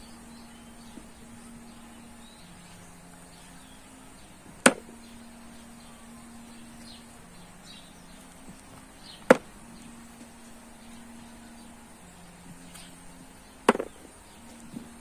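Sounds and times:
pits dropping into plastic bowl: 0:13.7 - 0:14.0.

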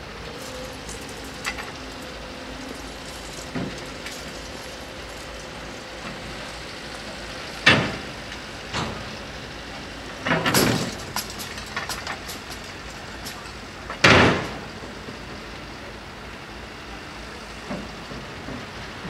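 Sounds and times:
barrier booms clattering down: 0:14.0 - 0:14.7.

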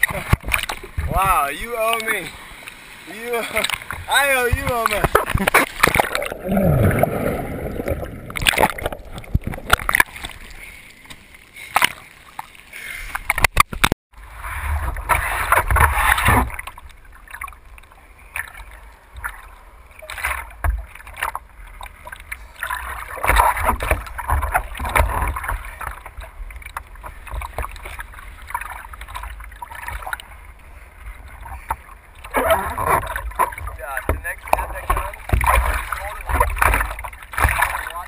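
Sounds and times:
water splashing against board: 0:00.0 - 0:12.5, 0:20.0 - 0:30.3, 0:31.2 - 0:38.0
wind: 0:00.0 - 0:38.0.

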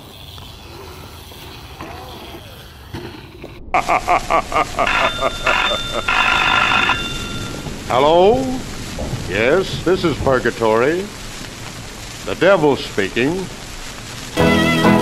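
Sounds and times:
telephone ringing: 0:04.8 - 0:07.7.

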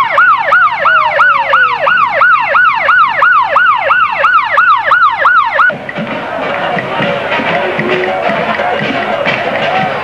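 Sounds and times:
police siren yelping: 0:00.0 - 0:05.8.

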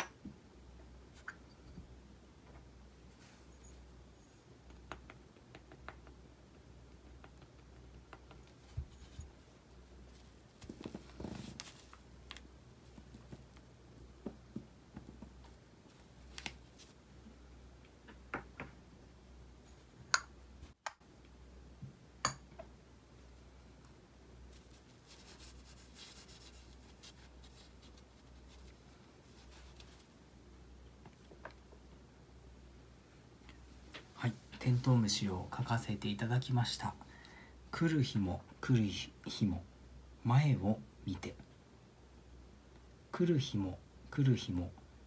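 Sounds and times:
tools tapping on felt table: 0:22.2 - 0:22.7
brush scratching on paper: 0:24.5 - 0:30.1.

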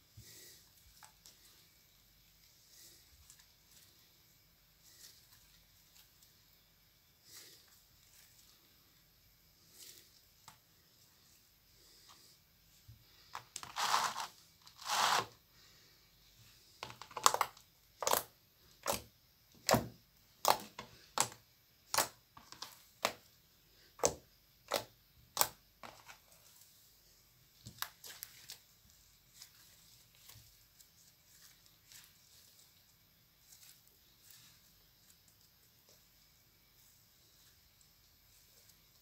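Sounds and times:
slime squelching: 0:17.1 - 0:23.3.

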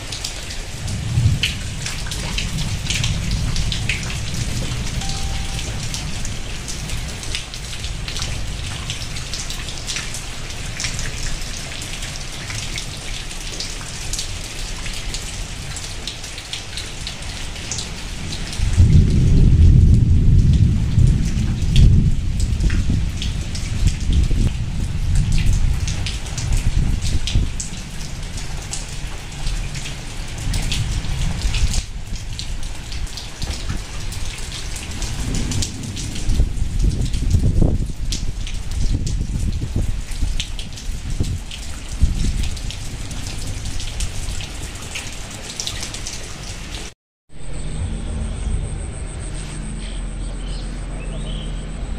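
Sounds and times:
heavy rain falling: 0:00.0 - 0:47.9
deep low rumble: 0:47.3 - 0:51.9.

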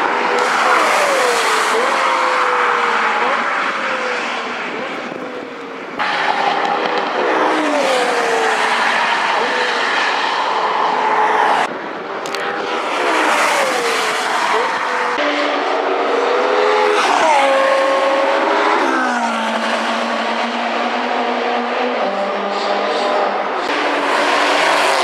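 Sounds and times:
high-revving car engine: 0:00.0 - 0:25.0.

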